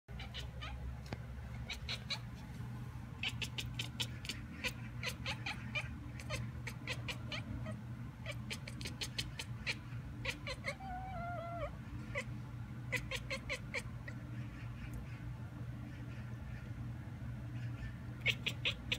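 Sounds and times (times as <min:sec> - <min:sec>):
cat chirp: 0:00.1 - 0:00.8, 0:01.6 - 0:02.3, 0:03.2 - 0:12.3, 0:12.9 - 0:14.2, 0:17.6 - 0:18.9
cat chattering: 0:00.1 - 0:00.9, 0:01.5 - 0:02.4, 0:03.1 - 0:18.9.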